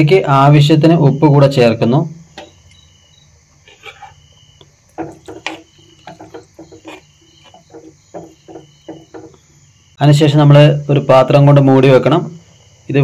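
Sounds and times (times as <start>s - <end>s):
spoon clinking and scraping clay pot: 3.7s - 4.2s, 4.9s - 9.4s.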